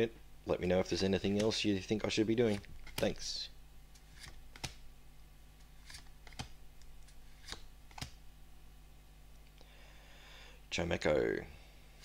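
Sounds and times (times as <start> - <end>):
cards clicking together: 2.5 - 3.2, 4.0 - 4.8, 5.8 - 8.2.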